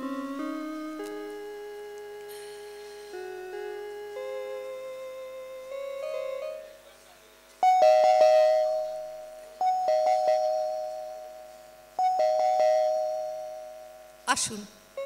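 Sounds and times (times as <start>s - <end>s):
soft music: 0.0s - 15.0s
doorbell chime: 7.6s - 11.4s, 12.0s - 14.1s.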